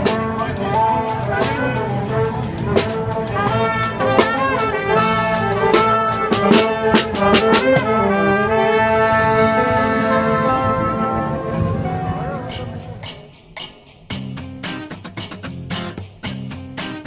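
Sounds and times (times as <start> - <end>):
brass band playing: 0.0 - 13.2
snare drum strokes: 2.8 - 8.0.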